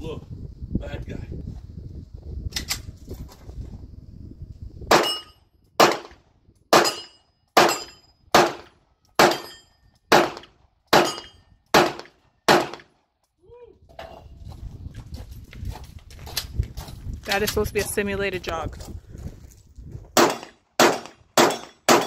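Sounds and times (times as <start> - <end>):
pistol shots with echo: 4.9 - 13.0, 20.2 - 22.0.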